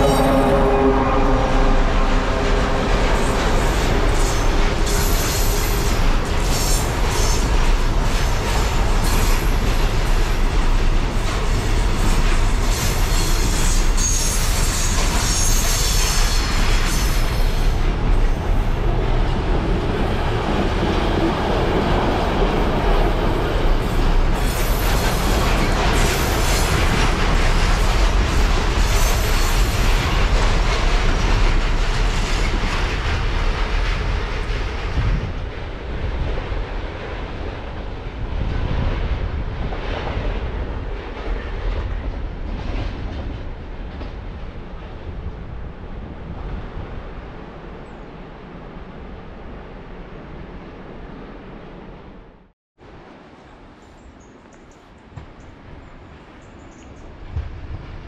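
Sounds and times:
train wheels rumbling on rails: 0:00.0 - 0:51.9, 0:55.0 - 0:58.0.

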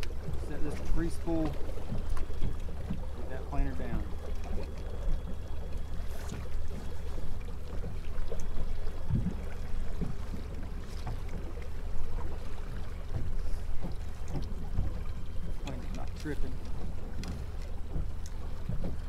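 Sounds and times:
boat motor droning: 0:00.0 - 0:19.0
water noise: 0:00.0 - 0:19.0
wind: 0:00.0 - 0:19.0.

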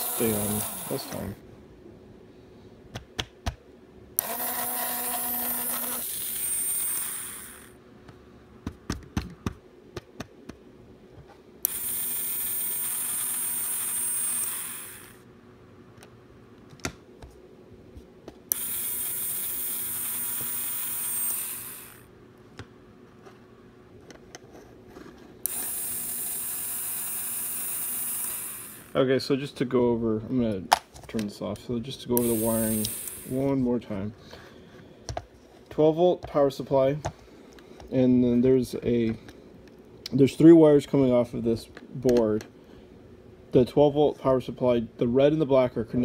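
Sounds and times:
small motor whining: 0:00.0 - 0:01.4, 0:04.2 - 0:07.8, 0:11.6 - 0:15.2, 0:18.5 - 0:22.1, 0:25.4 - 0:29.0, 0:32.2 - 0:33.4.

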